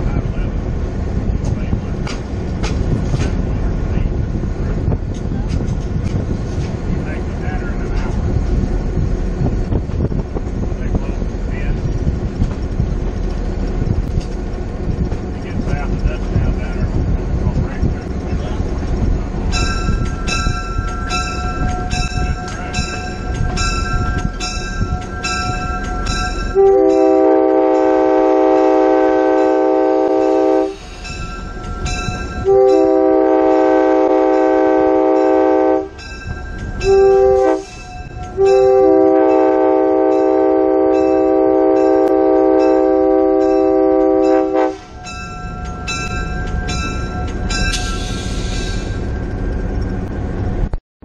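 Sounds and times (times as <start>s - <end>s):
moving train rumble: 0.0s - 50.8s
locomotive bell ringing: 19.5s - 28.0s, 29.3s - 33.6s, 34.3s - 49.8s
locomotive air horn blasts: 26.5s - 30.9s, 32.4s - 36.0s, 36.8s - 44.9s.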